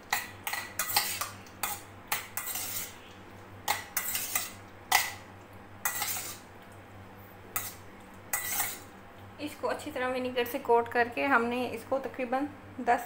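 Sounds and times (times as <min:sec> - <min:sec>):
liver scraping in metal bowl: 0:00.4 - 0:03.1, 0:04.0 - 0:05.1, 0:05.8 - 0:06.4, 0:07.6 - 0:08.9.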